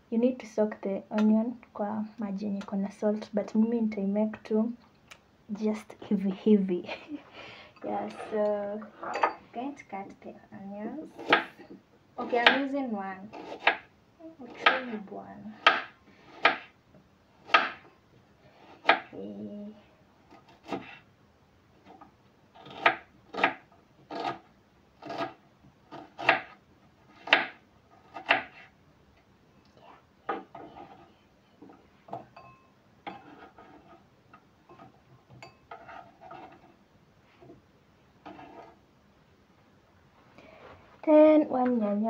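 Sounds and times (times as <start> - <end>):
knife cutting onion on board: 11.1 - 12.7, 13.3 - 13.9, 14.5 - 16.8, 17.4 - 17.9, 18.6 - 19.2, 20.3 - 21.0, 22.6 - 28.7, 33.0 - 34.0, 38.2 - 38.8.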